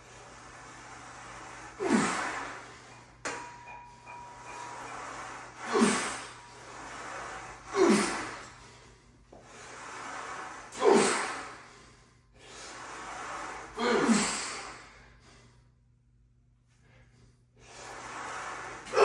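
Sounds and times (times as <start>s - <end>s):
man exhaling forcefully: 10.7s - 11.6s, 13.8s - 14.9s.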